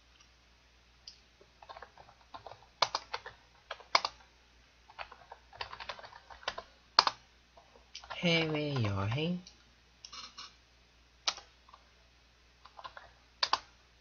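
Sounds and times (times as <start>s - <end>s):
typing on computer keyboard: 1.6s - 4.3s, 4.9s - 7.2s, 8.0s - 9.2s, 11.3s - 11.8s, 12.7s - 13.7s.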